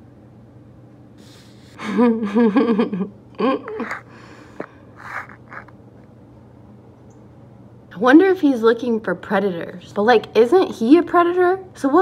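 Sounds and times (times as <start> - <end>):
breathy sounds: 3.7 - 5.7.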